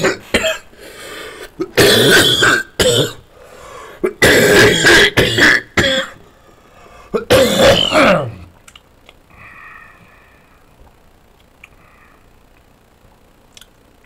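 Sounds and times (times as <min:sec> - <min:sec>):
man coughing: 0:01.6 - 0:03.2, 0:04.0 - 0:06.2, 0:07.2 - 0:08.4.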